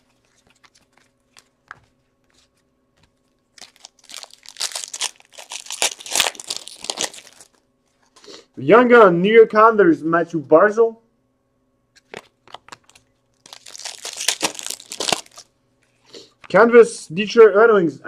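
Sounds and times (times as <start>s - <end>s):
wrapper tearing and crinkling: 3.5s - 7.6s, 12.0s - 15.5s.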